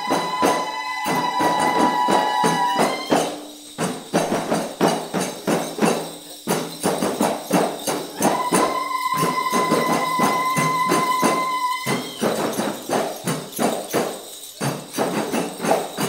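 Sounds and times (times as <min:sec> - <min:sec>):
hand drums and tambourines: 0:00.0 - 0:16.0
held high note: 0:08.1 - 0:12.7.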